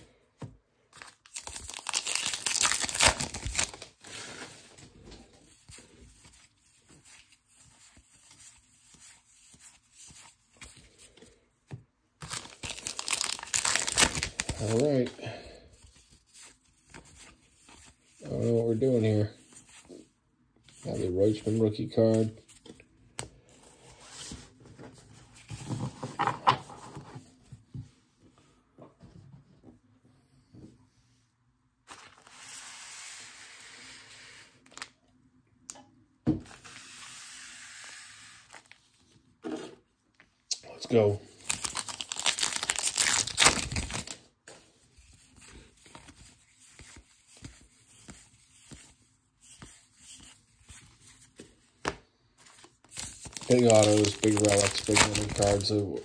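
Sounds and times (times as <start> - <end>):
wrappers rustling and crinkling: 1.0 - 4.8, 12.2 - 15.1, 40.9 - 44.2, 52.6 - 56.0.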